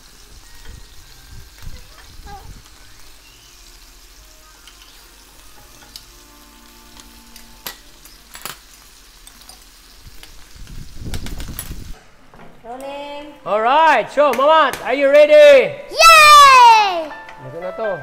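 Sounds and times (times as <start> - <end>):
meat sizzling in a pan: 0.0 - 12.0.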